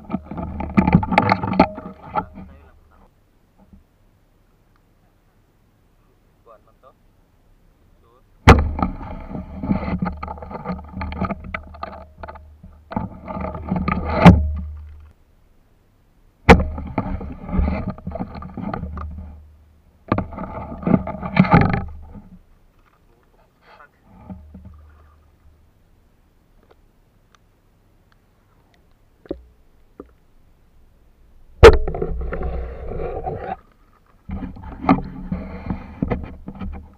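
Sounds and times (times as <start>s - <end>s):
sharp knock: 31.6s - 32.2s.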